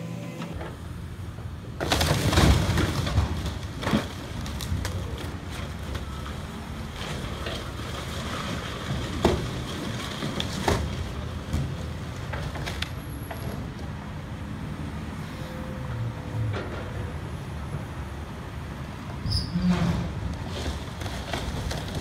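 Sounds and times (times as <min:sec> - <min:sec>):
tank crunching and cracking: 0:01.8 - 0:06.1, 0:20.4 - 0:22.0.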